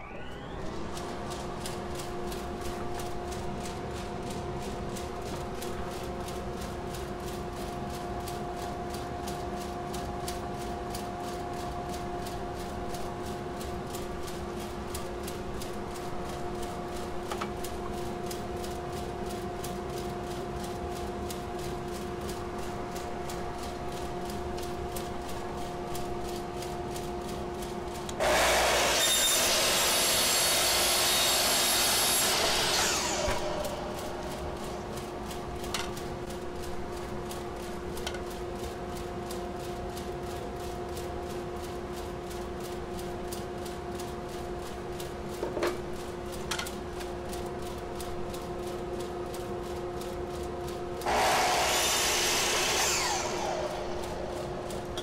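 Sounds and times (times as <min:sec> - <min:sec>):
dust collector humming: 0:22.4 - 0:37.6, 0:50.9 - 0:55.0
miter saw cutting plywood: 0:28.2 - 0:34.4, 0:51.0 - 0:54.4.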